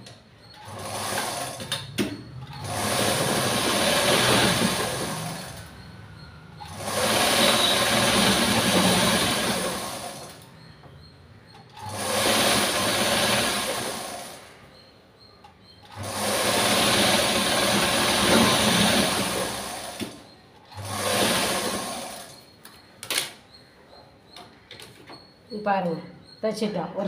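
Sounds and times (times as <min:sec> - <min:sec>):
sewing machine stitching cloth: 0:00.6 - 0:05.7, 0:06.6 - 0:10.4, 0:11.7 - 0:14.5, 0:15.8 - 0:22.5.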